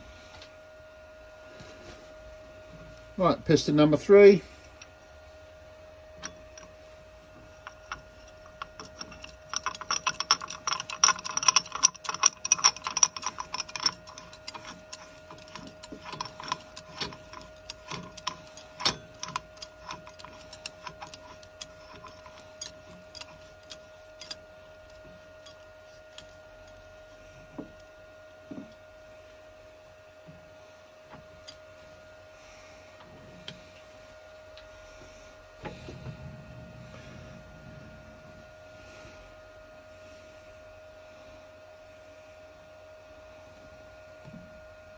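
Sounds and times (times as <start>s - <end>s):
steady hum: 0.0s - 44.9s
metal parts clinking and rattling: 6.2s - 26.9s.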